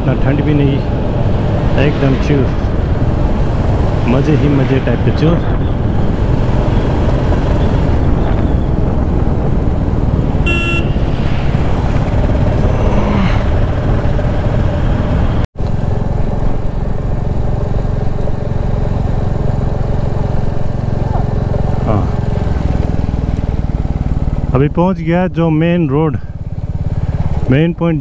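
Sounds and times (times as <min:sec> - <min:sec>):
motorcycle engine running: 0:00.0 - 0:28.0
wind and road noise: 0:00.0 - 0:28.0
horn beep: 0:10.4 - 0:11.0.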